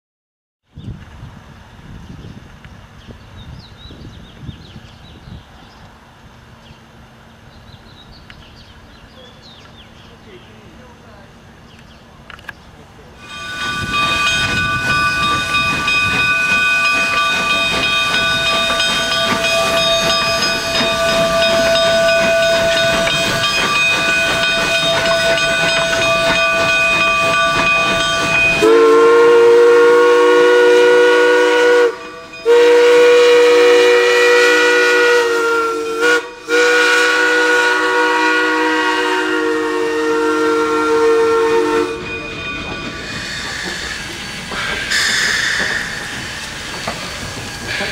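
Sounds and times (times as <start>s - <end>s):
steam whistle chord: 13.2s - 42.6s
steam hissing: 13.2s - 47.9s.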